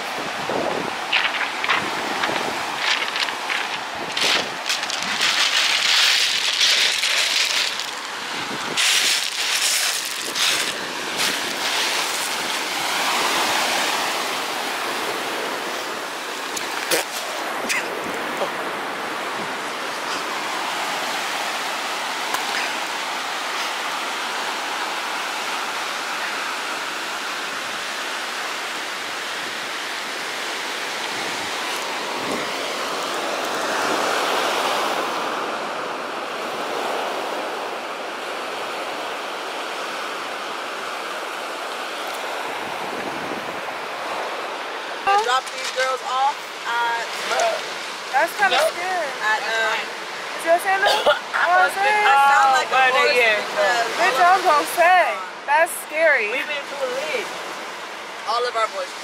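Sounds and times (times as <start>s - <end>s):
steady rushing noise: 0.0s - 12.9s
rustling: 1.1s - 8.1s, 8.8s - 12.5s.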